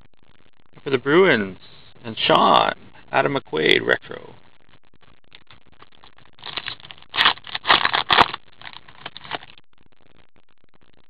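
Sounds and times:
wrapper crinkling and tearing: 5.4 - 9.6.

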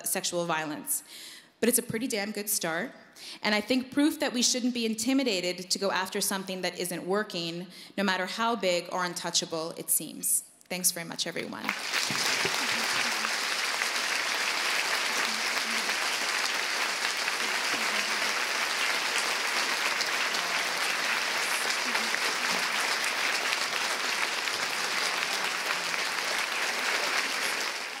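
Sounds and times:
audience applauding: 11.7 - 28.0.

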